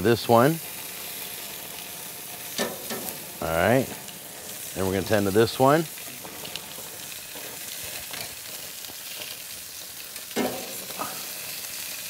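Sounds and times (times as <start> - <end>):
meat sizzling on grill: 0.0 - 12.0
tongs clicking against grates: 2.6 - 3.2.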